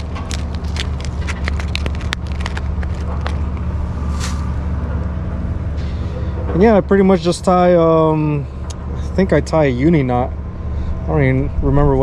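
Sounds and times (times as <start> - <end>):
plastic and paper packet crinkling: 0.0 - 3.7
steady low rumble: 0.0 - 12.0.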